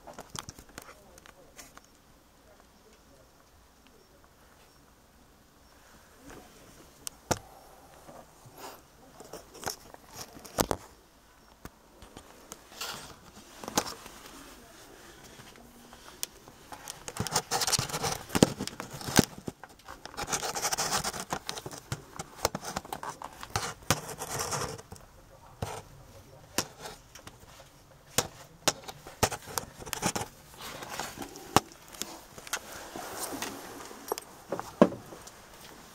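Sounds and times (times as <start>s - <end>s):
scraping and rustling: 11.9s - 35.9s.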